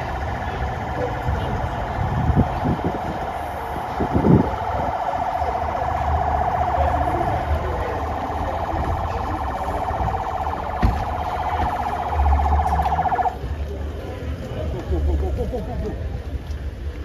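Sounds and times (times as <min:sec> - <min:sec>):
vehicle siren warbling: 0:00.0 - 0:13.4
thump: 0:10.8 - 0:11.0.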